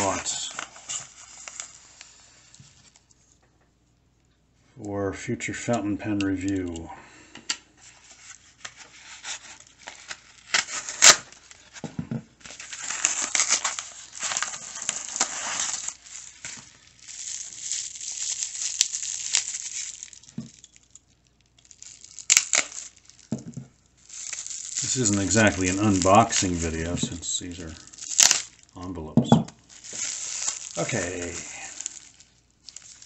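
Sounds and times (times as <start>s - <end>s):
paper tearing: 0.0s - 2.1s, 8.2s - 11.7s, 12.5s - 16.7s, 24.2s - 28.5s, 29.8s - 33.0s
bubble wrap crinkling: 0.0s - 3.4s, 7.8s - 33.0s.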